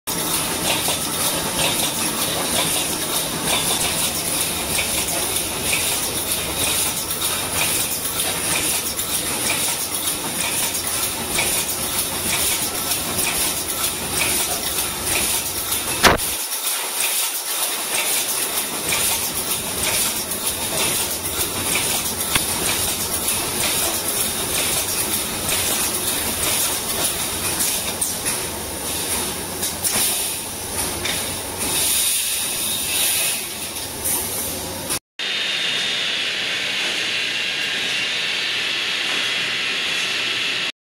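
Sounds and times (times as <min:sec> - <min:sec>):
hissing mechanical noise: 0:15.9 - 0:16.4
single sharp click: 0:16.0 - 0:16.4
welding heads firing rhythmically: 0:16.0 - 0:16.4.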